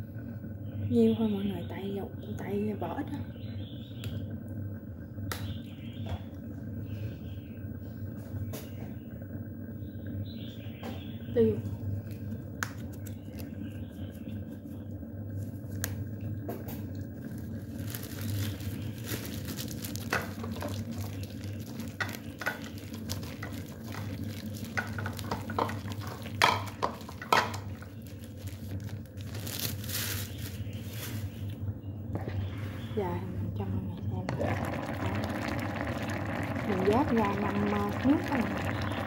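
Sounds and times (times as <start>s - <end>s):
low steady hum: 0.0s - 39.0s
wet squelches of mixing meat: 17.2s - 31.6s.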